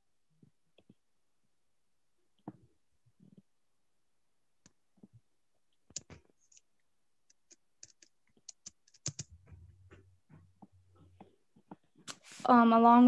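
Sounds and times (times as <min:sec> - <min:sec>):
computer clicking: 0:05.9 - 0:06.7, 0:07.3 - 0:09.3.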